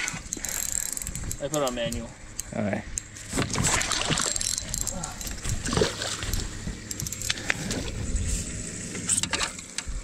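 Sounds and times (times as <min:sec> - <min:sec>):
fish splashing at surface: 0:03.5 - 0:04.4.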